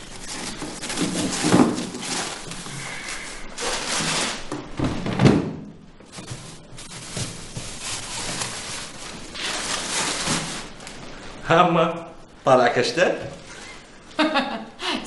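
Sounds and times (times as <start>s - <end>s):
rustling and handling items: 0.0s - 11.4s.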